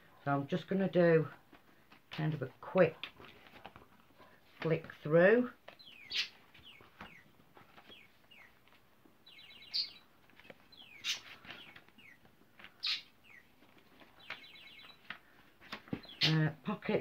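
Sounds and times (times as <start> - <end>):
book pages turning: 5.6 - 8.9, 10.2 - 12.8, 13.4 - 16.4
small bird chirping: 5.7 - 17.0.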